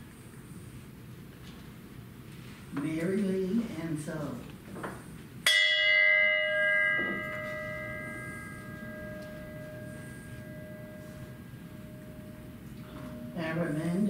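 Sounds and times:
handbell ringing: 0:05.5 - 0:13.4.

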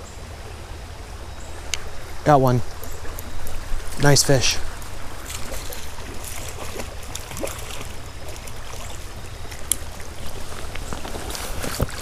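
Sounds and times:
shallow creek water running: 0:00.0 - 0:12.0
small clicks and splashes: 0:04.8 - 0:12.0.

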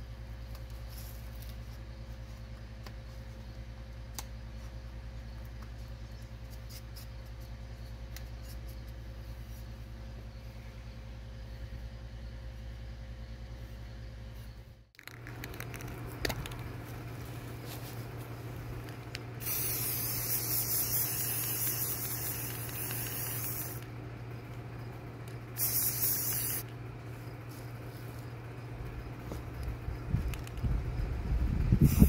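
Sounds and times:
spray paint can hissing: 0:19.4 - 0:23.9, 0:25.6 - 0:26.7, 0:31.7 - 0:32.0.

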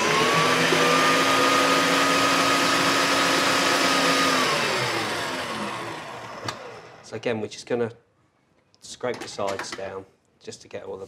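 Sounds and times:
stand mixer motor whine: 0:00.0 - 0:07.1.

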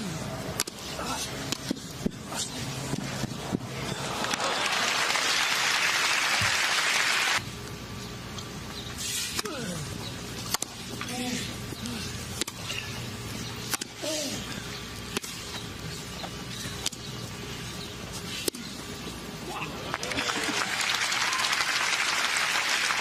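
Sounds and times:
crowd murmuring: 0:03.7 - 0:07.3, 0:19.4 - 0:23.0
crowd applauding: 0:04.0 - 0:07.4, 0:19.8 - 0:23.0.

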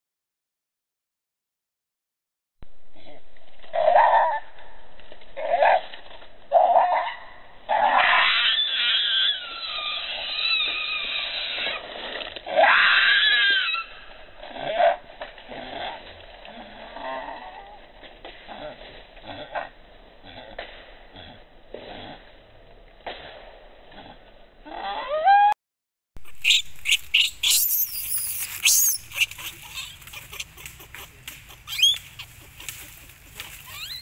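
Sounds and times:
infant monkey crying: 0:07.8 - 0:11.8, 0:26.2 - 0:34.0
shrill screams: 0:07.8 - 0:11.9, 0:12.5 - 0:14.0, 0:26.4 - 0:30.0, 0:31.7 - 0:32.0.

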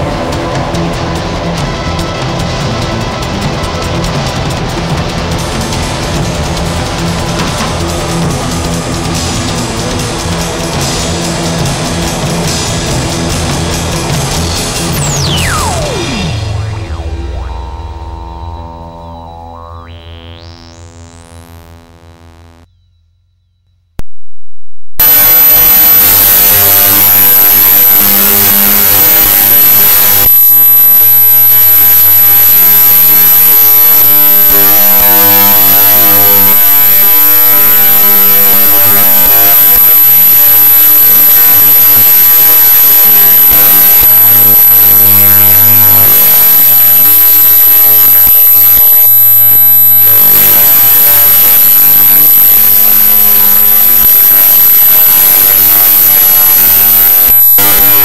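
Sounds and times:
electronic drone of hum and hiss: 0:14.3 - 0:22.7, 0:25.0 - 0:58.0
thin high whine: 0:15.0 - 0:22.7, 0:25.0 - 0:58.0.

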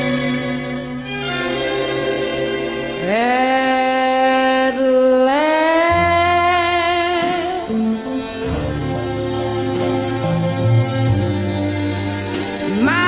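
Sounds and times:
slow song with sliding notes: 0:00.0 - 0:13.0
bass line: 0:05.8 - 0:13.0
guitar: 0:05.8 - 0:13.0.

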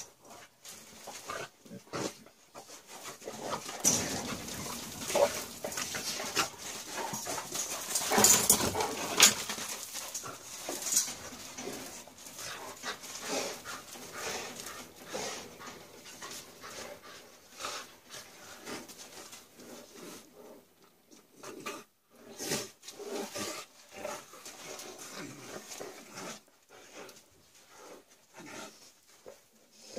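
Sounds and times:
dogs scuffling: 0:00.0 - 0:20.0
dogs breathing hard: 0:00.0 - 0:29.9.

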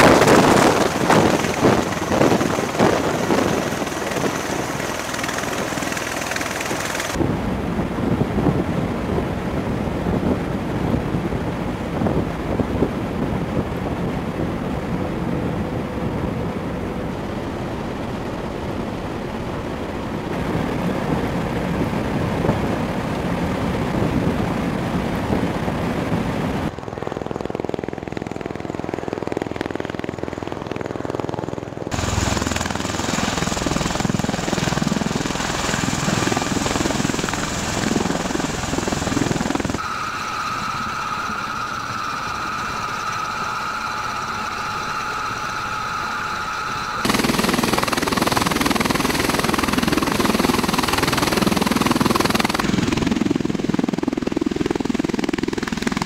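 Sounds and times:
aircraft rotors beating: 0:00.0 - 0:56.0
high whine: 0:16.4 - 0:22.8, 0:31.9 - 0:56.0.

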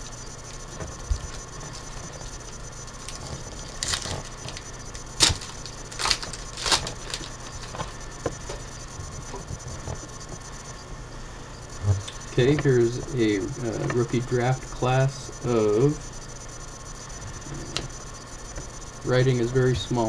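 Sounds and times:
steady low hum: 0:00.0 - 0:20.0
foil wrapper crinkling: 0:01.2 - 0:08.6.

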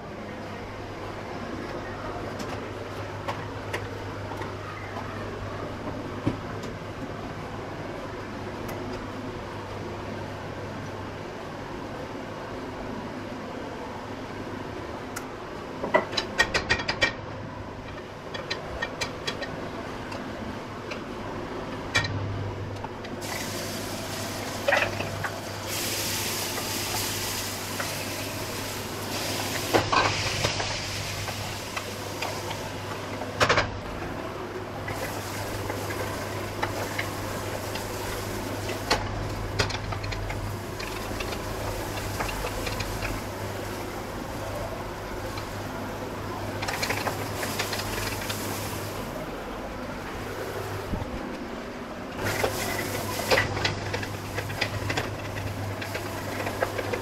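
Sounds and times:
oil sizzling in a pot: 0:23.2 - 0:33.2, 0:34.6 - 0:49.2, 0:52.2 - 0:57.0.

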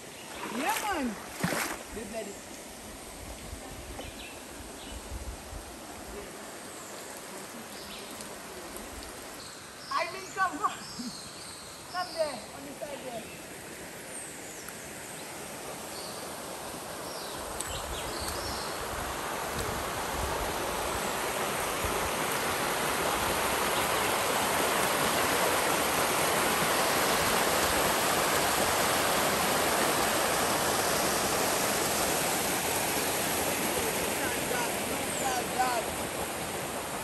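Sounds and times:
water rushing over rock: 0:00.2 - 0:03.8, 0:16.4 - 0:37.0.

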